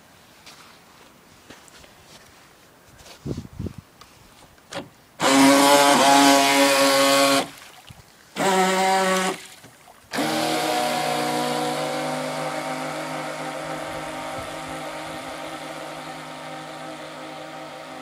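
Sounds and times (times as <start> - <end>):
model boat motor revving: 5.2 - 7.6, 8.4 - 9.5, 10.1 - 18.0.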